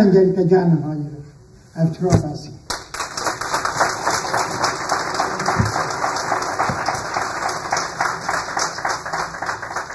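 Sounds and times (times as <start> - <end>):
audience applauding: 2.7 - 9.9.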